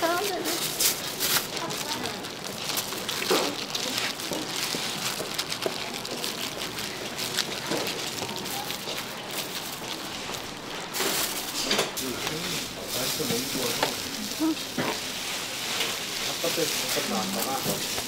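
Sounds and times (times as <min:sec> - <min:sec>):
faint voices: 0:01.4 - 0:14.8.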